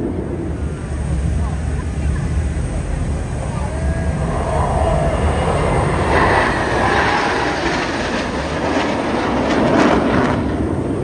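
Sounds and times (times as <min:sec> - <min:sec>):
jet aircraft passing overhead: 0:00.0 - 0:11.0.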